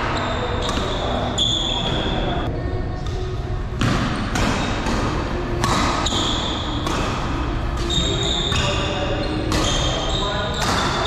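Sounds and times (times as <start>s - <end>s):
sneakers squeaking on floor: 0.0s - 2.5s, 3.8s - 11.0s
rackets striking shuttlecock: 0.6s - 1.3s, 3.8s - 11.0s.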